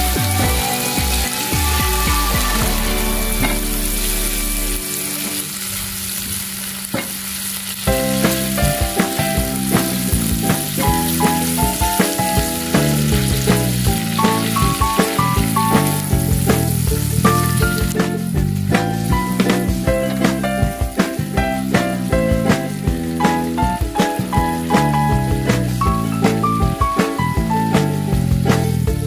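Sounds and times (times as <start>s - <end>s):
shrimp sizzling in oil: 0.0s - 29.0s
background music melody: 7.9s - 29.0s.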